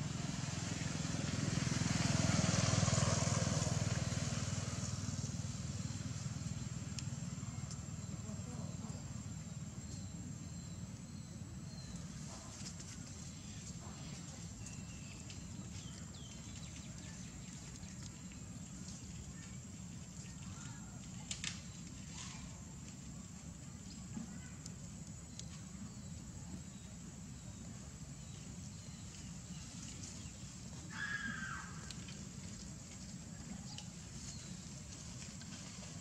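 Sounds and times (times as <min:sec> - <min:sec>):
faint clicks: 0:06.9 - 0:07.8.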